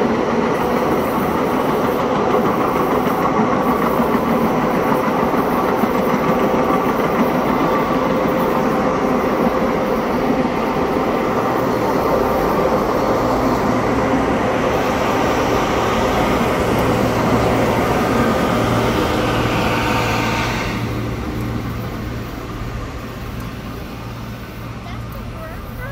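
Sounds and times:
steel wheels rolling on rail: 0.0 - 25.9.

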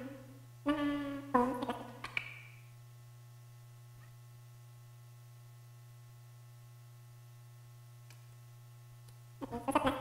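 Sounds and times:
steady low hum: 0.0 - 10.0.

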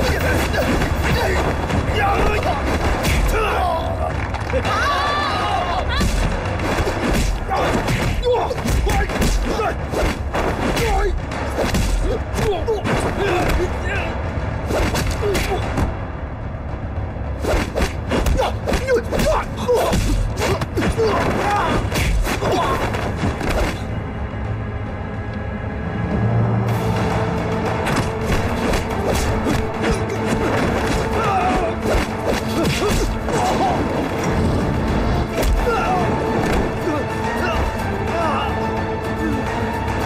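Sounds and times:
men grunting and crying out: 0.0 - 6.3, 6.9 - 11.2, 18.2 - 23.9, 28.4 - 34.3, 35.2 - 40.0
background music: 0.0 - 40.0
punch and kick impacts: 6.0 - 13.6.

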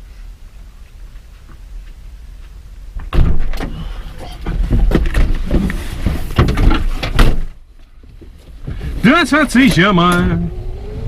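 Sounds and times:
clunks and rustling: 3.0 - 10.4.

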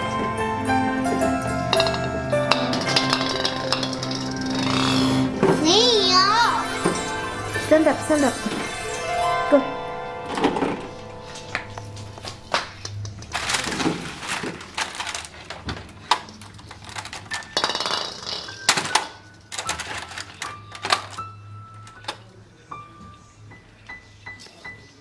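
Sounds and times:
baubles clicking and knocking: 1.7 - 5.6, 12.2 - 21.2.

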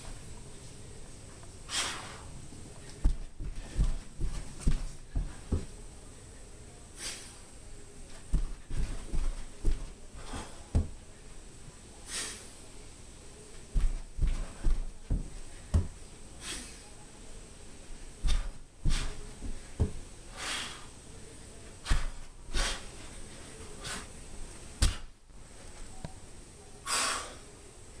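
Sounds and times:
thuds on carpeted floor: 3.0 - 5.7, 8.3 - 11.0, 13.7 - 16.0, 18.2 - 20.0
man breathing hard: 20.3 - 20.9, 26.9 - 27.5.

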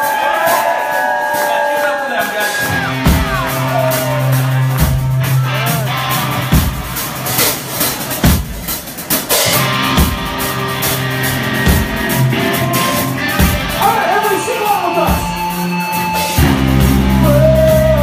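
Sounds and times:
live rock band playing: 0.0 - 18.0.

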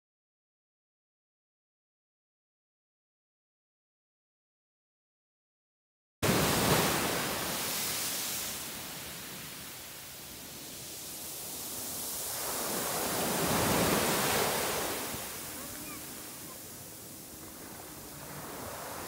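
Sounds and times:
small waves breaking on beach: 6.2 - 19.0.

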